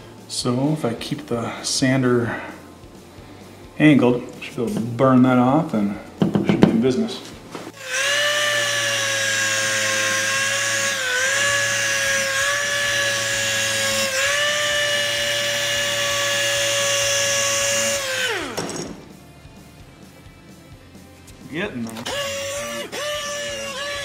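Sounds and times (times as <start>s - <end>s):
air orbital sander whining: 7.7s - 19.2s, 21.9s - 24.0s.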